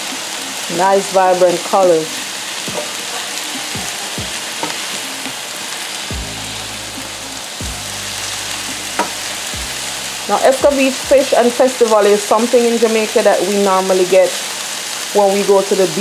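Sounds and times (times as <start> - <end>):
vegetables sizzling in oil: 0.0 - 16.0
sharp knock: 9.0 - 9.2.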